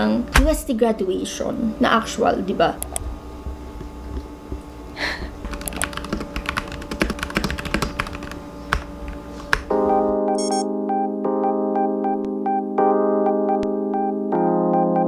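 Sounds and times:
faint background music: 0.0s - 4.9s
typing on computer keyboard: 5.4s - 8.9s
electric piano music: 5.4s - 15.0s.

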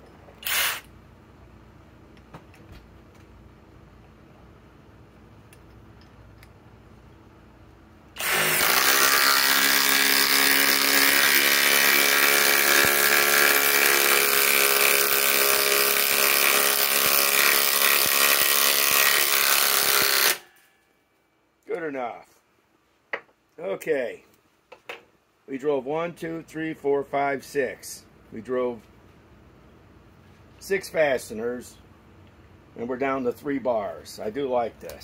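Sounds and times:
impact driver hammering: 8.2s - 20.5s.

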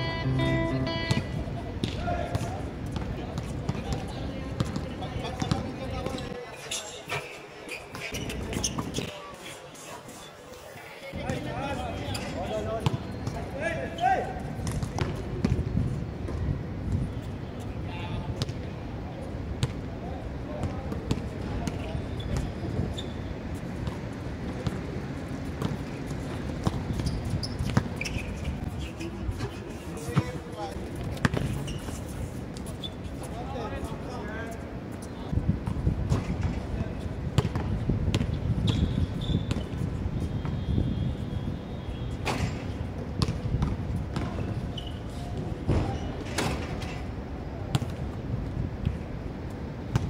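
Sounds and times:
footfalls on outdoor court: 1.8s - 10.3s, 11.1s - 17.6s, 20.5s - 33.6s, 34.9s - 40.7s, 42.1s - 47.1s
shoe squeaks: 6.0s - 10.5s, 11.8s - 14.3s, 21.7s - 23.5s, 26.6s - 30.4s, 31.2s - 33.4s, 38.2s - 42.8s, 44.2s - 46.4s
wind rumble on microphone: 35.3s - 41.8s
basketball bouncing: 43.2s - 44.3s.

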